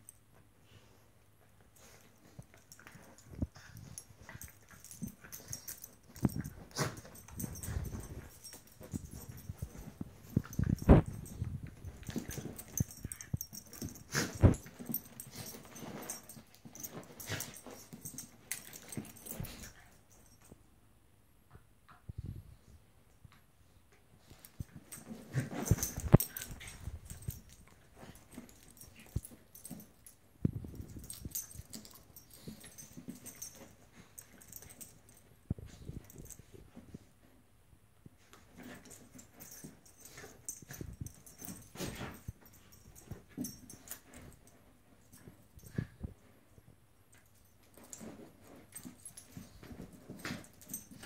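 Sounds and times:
dogs play-fighting noises: 0:00.6 - 0:20.6, 0:24.2 - 0:37.3, 0:38.1 - 0:51.0
dogs scuffling: 0:02.3 - 0:20.4.

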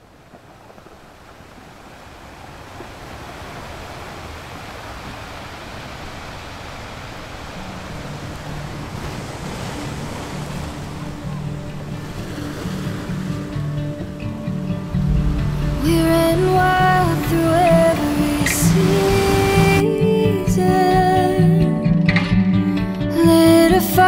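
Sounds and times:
ocean waves breaking: 0:00.0 - 0:21.5
low sustained tones: 0:13.8 - 0:19.4.

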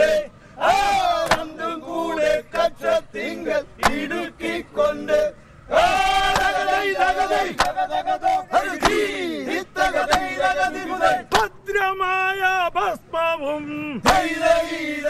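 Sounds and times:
men singing in chorus: 0:00.0 - 0:11.5, 0:12.8 - 0:15.0
sharp hand claps: 0:01.2 - 0:01.5, 0:03.8 - 0:04.0, 0:06.3 - 0:06.6, 0:07.5 - 0:07.8, 0:08.7 - 0:09.1, 0:10.0 - 0:10.4, 0:11.3 - 0:11.5.

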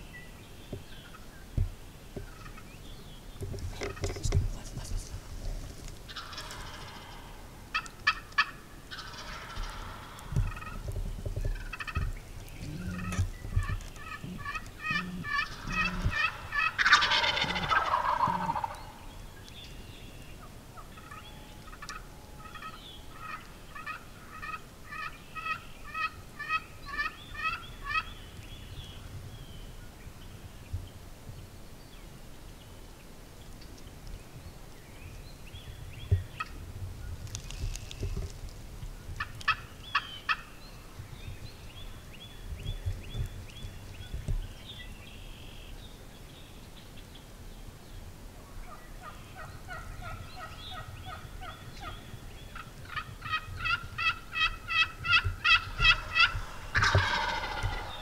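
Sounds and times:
turkey clucks: 0:02.2 - 0:02.7, 0:03.8 - 0:19.1, 0:20.4 - 0:28.1, 0:39.2 - 0:40.5, 0:48.7 - 0:58.0
turkey yelps: 0:06.1 - 0:10.8, 0:12.9 - 0:19.0, 0:52.8 - 0:58.0
turkey gobble: 0:06.1 - 0:10.9, 0:11.6 - 0:19.1, 0:20.8 - 0:28.1, 0:39.2 - 0:40.5, 0:48.6 - 0:52.0, 0:52.6 - 0:58.0.

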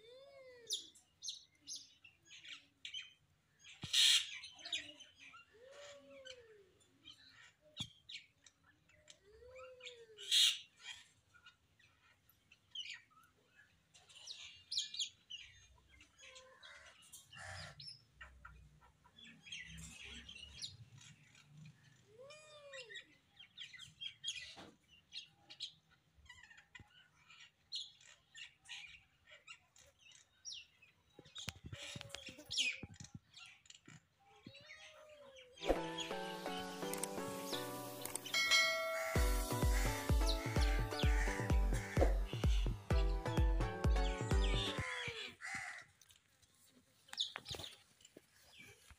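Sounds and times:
birds chirping: 0:00.7 - 0:45.8
bird calls rising and falling: 0:35.5 - 0:45.4.

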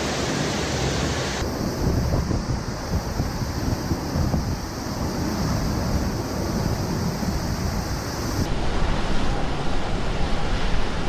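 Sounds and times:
water pouring and crashing: 0:00.0 - 0:01.4.

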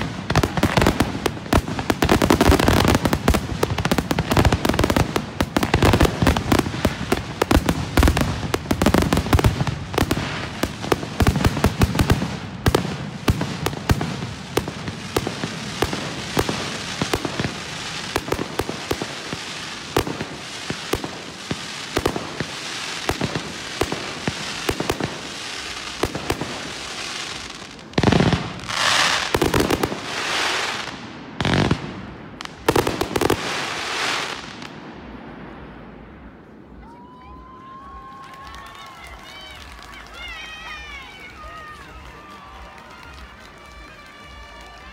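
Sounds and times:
fireworks bursting and crackling: 0:00.0 - 0:44.9.

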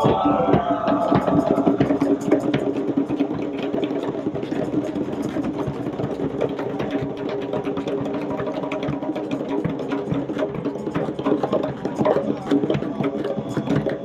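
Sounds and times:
bass drum: 0:00.0 - 0:03.4
group of hand drums playing: 0:00.0 - 0:14.0.

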